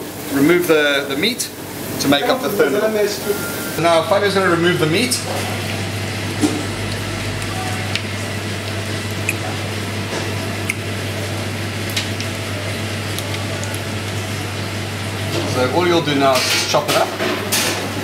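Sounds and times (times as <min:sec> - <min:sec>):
kitchen ventilation hiss and hum: 0:00.0 - 0:18.0
soft squishing of shellfish meat: 0:06.9 - 0:14.4.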